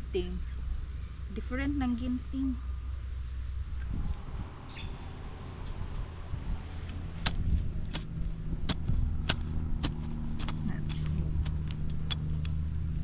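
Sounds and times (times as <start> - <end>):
low motor hum: 0.0 - 13.0
low rumble: 0.0 - 13.0
trowel chopping into soil: 7.2 - 12.2.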